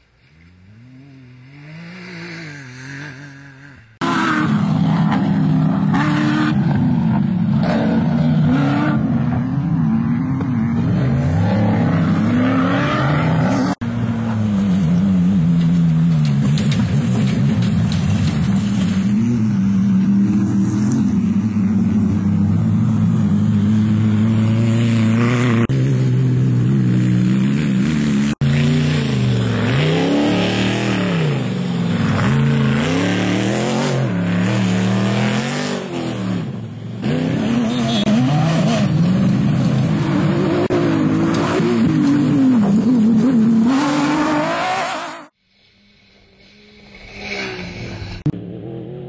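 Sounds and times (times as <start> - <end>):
race car engines revving: 0.0 - 49.0.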